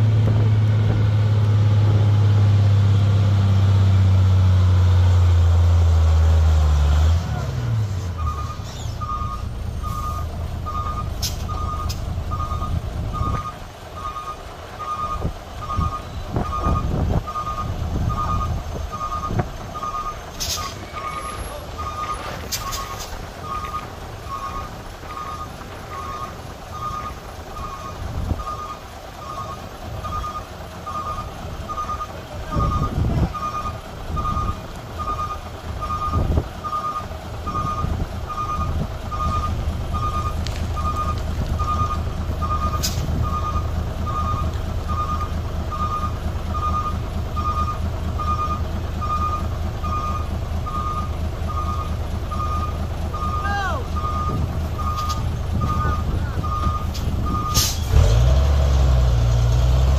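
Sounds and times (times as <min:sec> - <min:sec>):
truck engine running: 0:00.0 - 0:59.9
reversing alarm beeping: 0:08.2 - 0:58.2.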